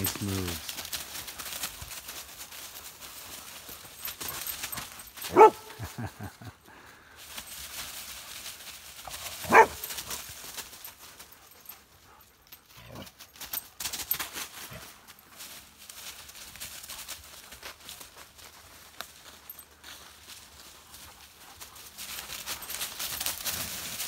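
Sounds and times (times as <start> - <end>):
dry leaves rustling: 0.0 - 11.8, 12.8 - 24.0
dog barking: 5.3 - 5.7, 9.4 - 9.9.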